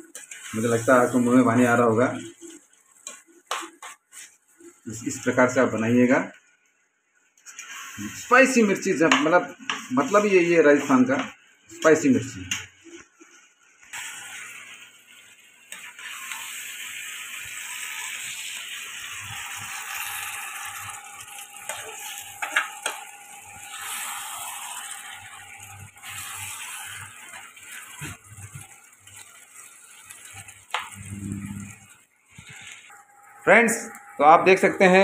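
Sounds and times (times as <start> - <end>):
curry sizzling and bubbling: 0.0 - 35.0.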